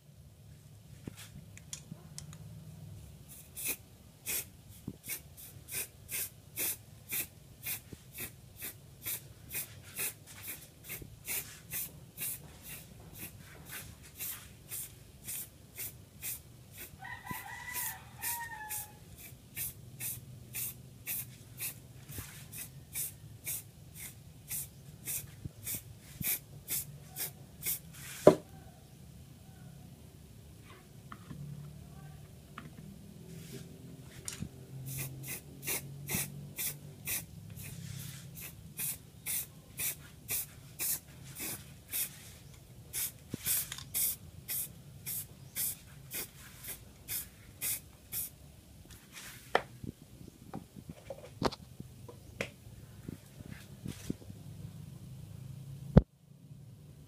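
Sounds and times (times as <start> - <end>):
rooster crowing: 17.0 - 19.1.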